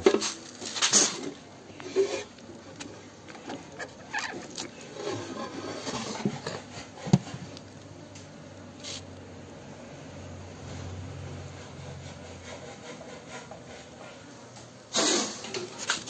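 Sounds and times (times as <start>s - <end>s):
rustling: 15.6s - 16.0s.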